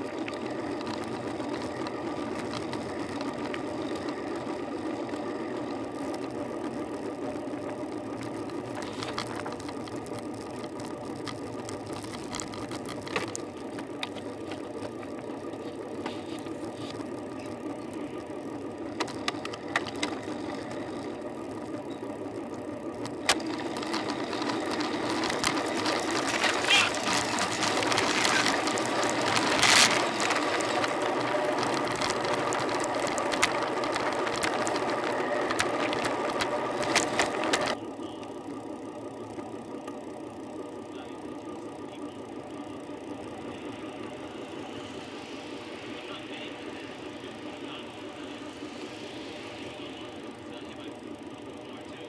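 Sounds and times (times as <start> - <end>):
bike rattling and clicking: 0.0 - 52.0
road and wind rush: 23.0 - 37.8.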